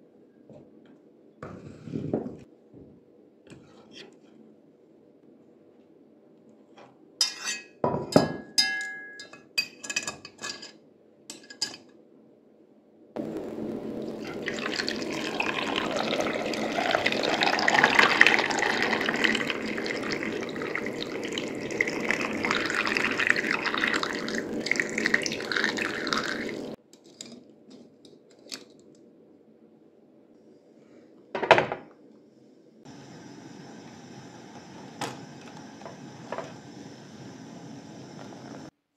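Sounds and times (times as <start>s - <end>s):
water pouring into pot: 13.8s - 26.8s.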